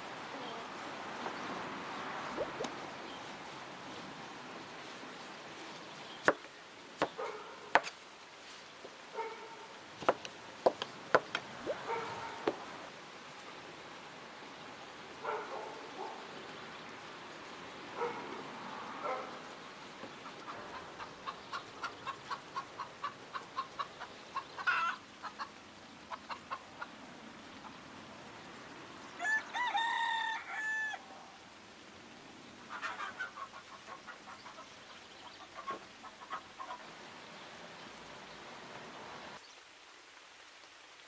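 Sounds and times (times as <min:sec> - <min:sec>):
hen clucking: 0:02.3 - 0:02.8, 0:20.2 - 0:25.5
rooster crowing: 0:29.2 - 0:31.1.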